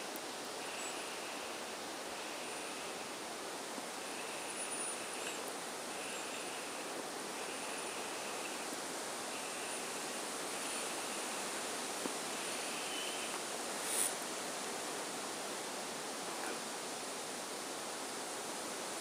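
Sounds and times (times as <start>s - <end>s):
outdoor background hiss: 0.0s - 19.0s
faint high-pitched call: 12.3s - 13.4s.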